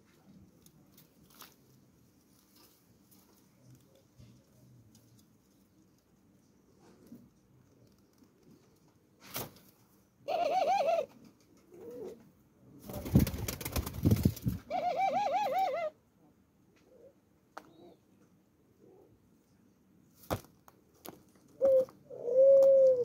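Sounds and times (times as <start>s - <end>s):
dove cooing: 10.3s - 12.2s, 14.6s - 16.0s, 21.6s - 23.0s
wing flurry rustling: 12.8s - 14.7s.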